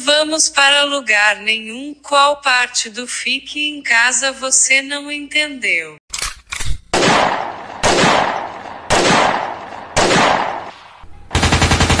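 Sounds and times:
loud sudden bangs: 0:07.0 - 0:12.0.

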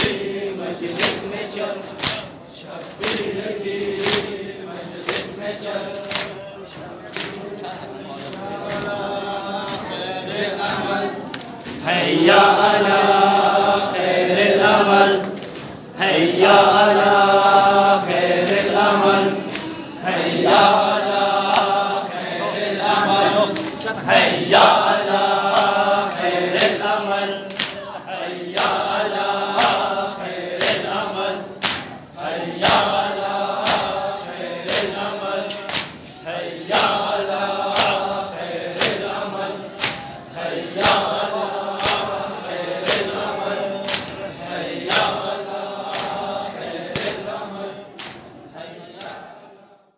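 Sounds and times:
men chanting in unison: 0:00.0 - 0:49.9
hands slapping chests: 0:00.8 - 0:03.4, 0:04.0 - 0:07.5, 0:19.3 - 0:19.9, 0:26.5 - 0:27.9, 0:29.5 - 0:30.0, 0:30.6 - 0:31.0, 0:31.6 - 0:32.0, 0:33.6 - 0:34.0, 0:34.7 - 0:36.1, 0:37.6 - 0:39.1, 0:39.7 - 0:40.2, 0:40.8 - 0:42.2, 0:42.8 - 0:43.2, 0:43.8 - 0:44.2, 0:44.8 - 0:46.3, 0:46.9 - 0:47.2, 0:47.9 - 0:48.3.

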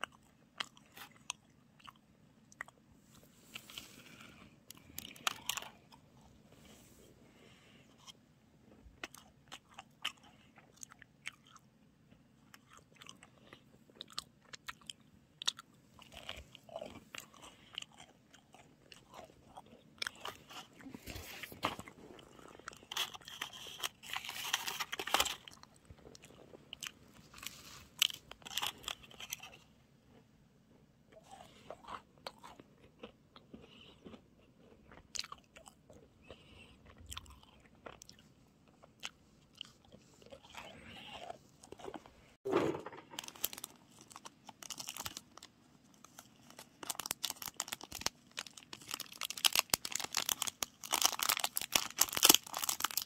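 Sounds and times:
quiet chewing: 0:00.0 - 0:42.4
macaron crunching: 0:03.5 - 0:06.3, 0:12.5 - 0:30.2, 0:42.9 - 0:53.0.

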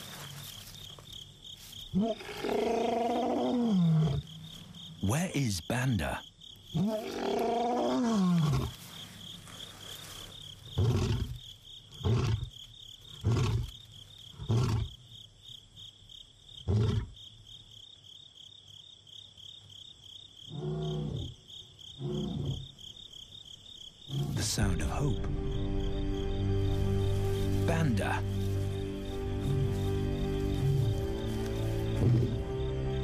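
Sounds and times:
insect trill: 0:00.0 - 0:33.0
lion roaring and grunting: 0:02.0 - 0:04.3, 0:06.7 - 0:08.8, 0:10.8 - 0:11.4, 0:22.0 - 0:22.8, 0:30.4 - 0:32.4.

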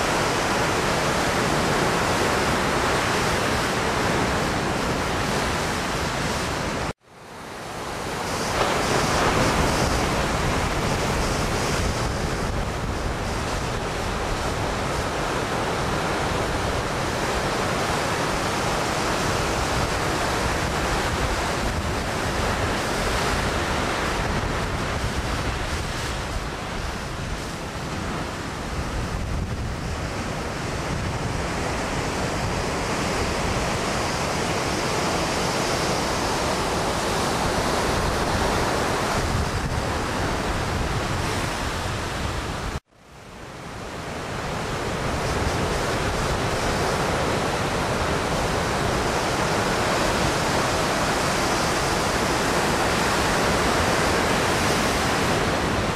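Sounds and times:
ocean surf breaking: 0:00.0 - 0:42.8, 0:43.4 - 0:55.9
wind buffeting microphone: 0:07.8 - 0:42.8.

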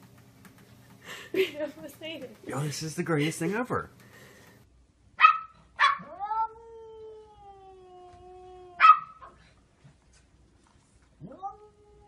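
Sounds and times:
small dog yipping: 0:05.2 - 0:06.6, 0:08.8 - 0:09.4
cat yowling: 0:05.2 - 0:09.3.

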